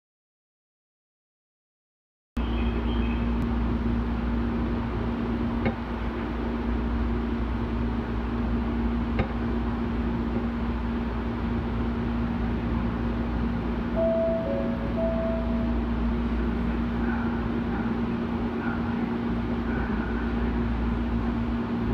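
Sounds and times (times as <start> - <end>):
train car equipment humming: 2.4 - 21.9
low rumble: 12.2 - 18.6.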